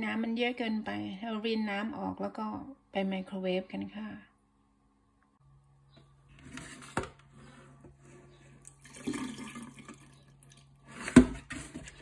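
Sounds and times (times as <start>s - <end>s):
water poured into steel sink: 8.6s - 10.6s.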